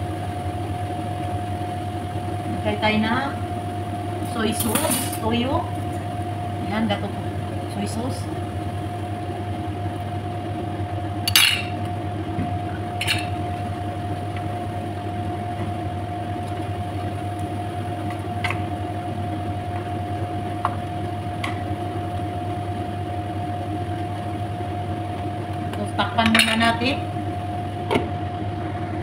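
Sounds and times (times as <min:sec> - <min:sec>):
steady hum: 0:00.0 - 0:29.0
utensils clinking against pan: 0:11.3 - 0:11.8, 0:13.0 - 0:13.4.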